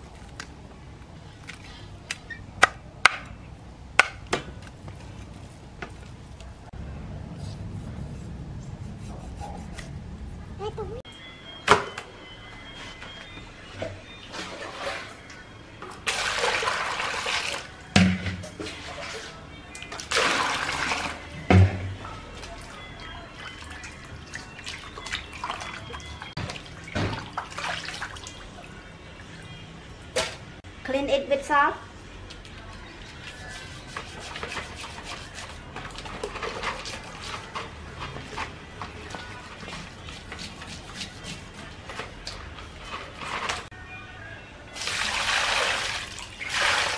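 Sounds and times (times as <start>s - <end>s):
water pouring into plastic basin: 16.0s - 17.7s, 20.0s - 21.3s, 44.8s - 46.9s
hands scrubbing salt on fish: 33.2s - 35.6s, 39.4s - 41.7s.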